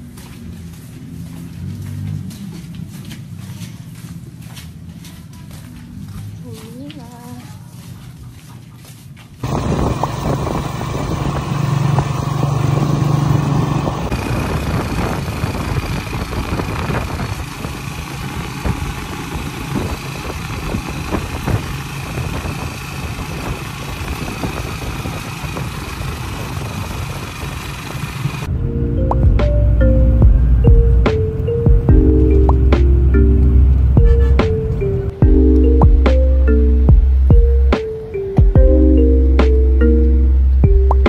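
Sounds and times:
motor engine running: 9.4s - 37.8s.

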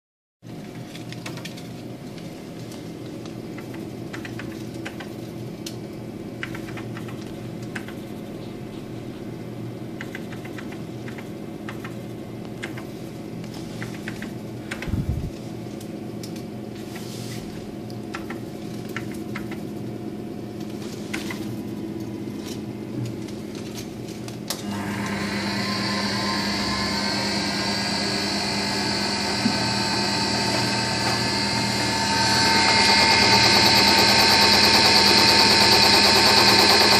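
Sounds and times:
keypad keys clicking: 3.5s - 5.2s, 6.4s - 8.1s, 10.0s - 12.9s, 13.8s - 15.0s, 18.1s - 19.7s
lathe humming: 24.6s - 36.9s
motor high whine: 24.6s - 36.9s.

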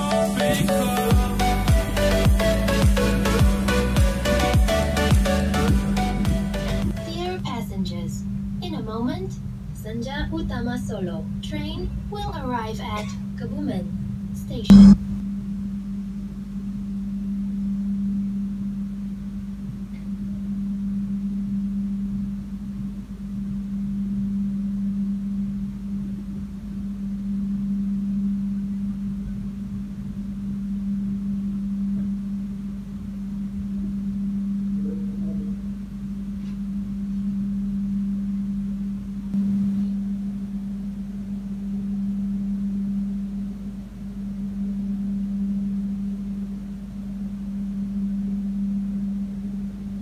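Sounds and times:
low hum of standing train: 6.9s - 14.7s.

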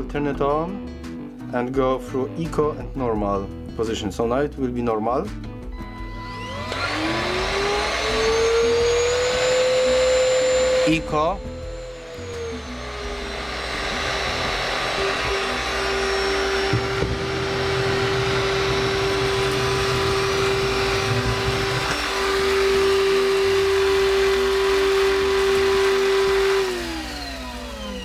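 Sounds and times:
motor winding down: 5.8s - 28.0s
vacuum cleaner motor whining: 5.8s - 28.0s.

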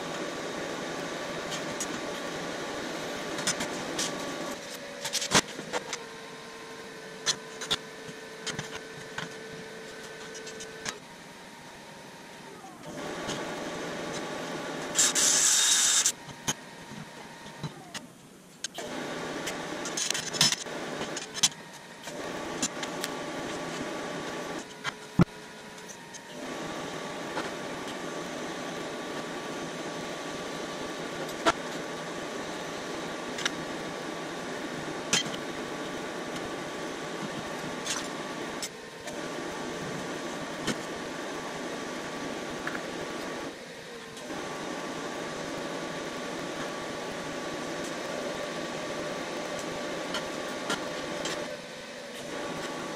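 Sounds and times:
welding arc hissing: 14.1s - 16.2s.

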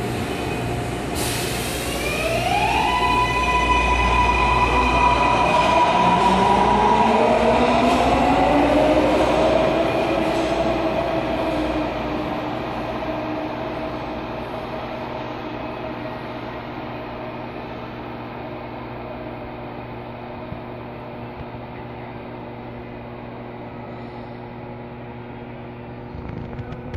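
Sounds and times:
subway train pulling away: 0.0s - 26.9s.

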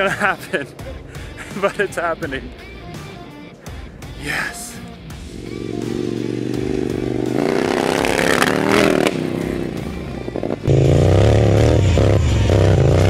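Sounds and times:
motorcycle engine revving: 5.0s - 13.0s.

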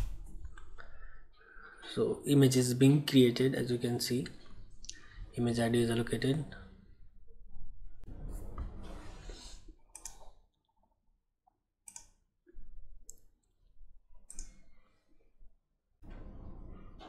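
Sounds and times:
computer mouse clicks: 9.9s - 10.3s, 11.8s - 12.2s, 14.3s - 14.7s.

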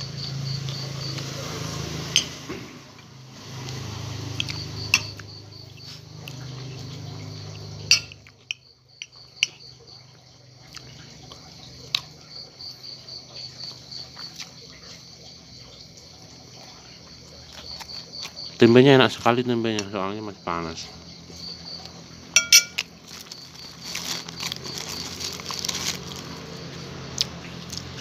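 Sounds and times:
crickets chirping: 0.0s - 28.0s
metal spoon scraping ceramic plate: 22.4s - 22.9s.

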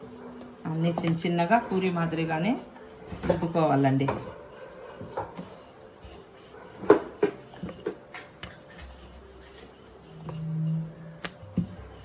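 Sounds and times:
rolling pin knocking on wooden board: 5.0s - 8.6s.

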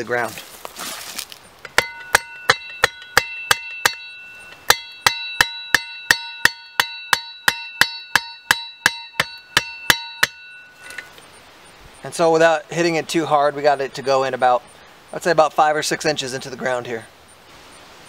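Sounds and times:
shovel head striking wooden stake: 1.6s - 11.2s.

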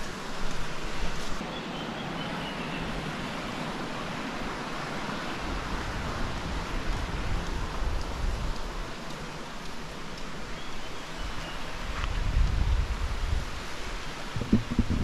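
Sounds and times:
low rumble: 14.4s - 15.0s.

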